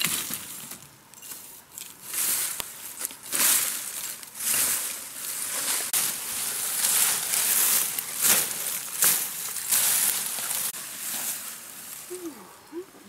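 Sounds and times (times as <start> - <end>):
grass and dry leaves rustling: 0.0 - 13.0.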